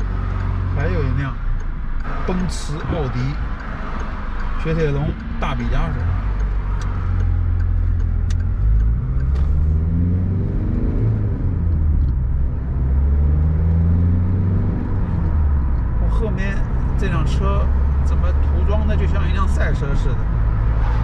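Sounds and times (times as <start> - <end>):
faint ticks: 0.0 - 9.7
car engine and tyres rumbling: 0.0 - 21.0.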